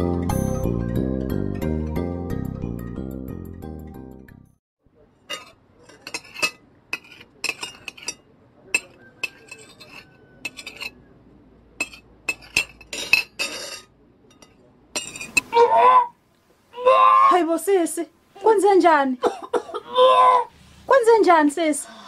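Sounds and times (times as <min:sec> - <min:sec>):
spoons clinking on plates: 0:05.2 - 0:11.0, 0:11.8 - 0:15.5.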